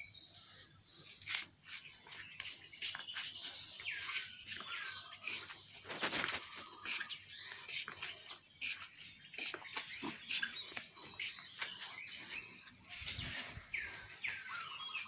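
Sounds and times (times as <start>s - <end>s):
small birds chirping: 0.0s - 15.0s
brief rustle: 5.8s - 7.1s.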